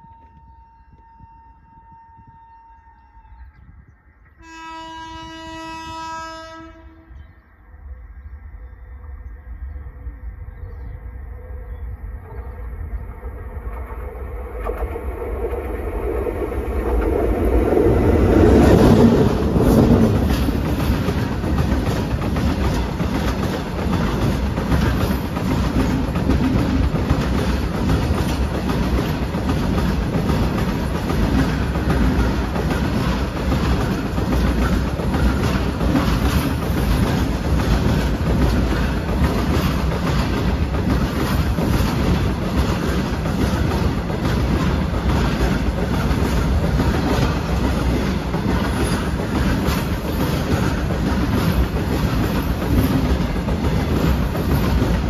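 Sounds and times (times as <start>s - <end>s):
train passing overhead: 0.0s - 55.0s
train wheels clickety-clack: 13.6s - 55.0s.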